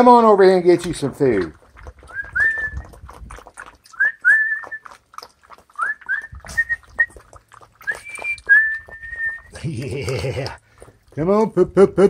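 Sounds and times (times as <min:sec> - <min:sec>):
puppies whining: 0:05.7 - 0:09.6.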